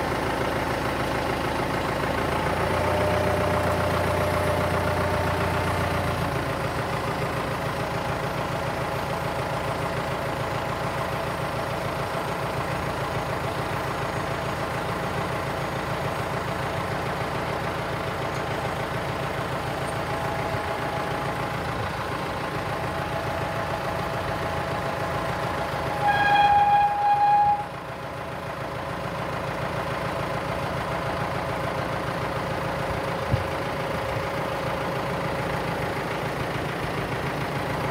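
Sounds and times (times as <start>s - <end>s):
tractor diesel engine running: 0.0s - 37.9s
loud steady high tone: 25.8s - 27.8s.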